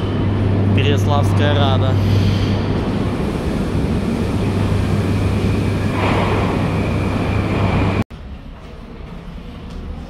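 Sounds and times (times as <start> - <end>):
metro train rumbling: 0.0 - 8.0.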